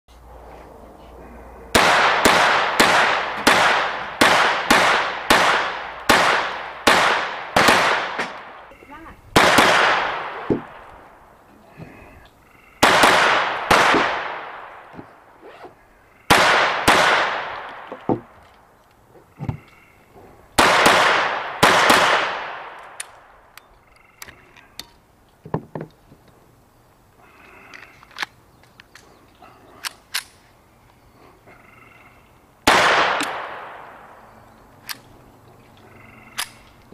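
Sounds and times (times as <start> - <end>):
handgun shots with echo: 32.7 - 33.9.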